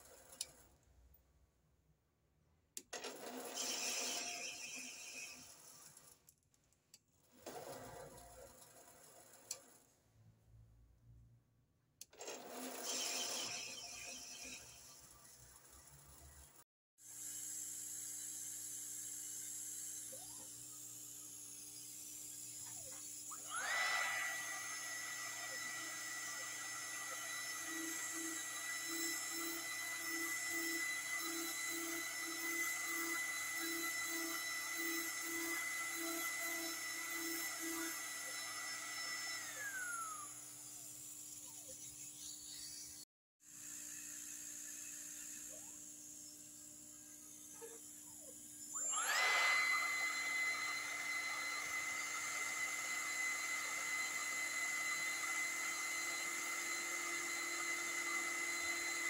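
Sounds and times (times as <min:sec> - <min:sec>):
milling machine spindle whine: 0:21.8 - 0:42.9, 0:44.2 - 0:59.0.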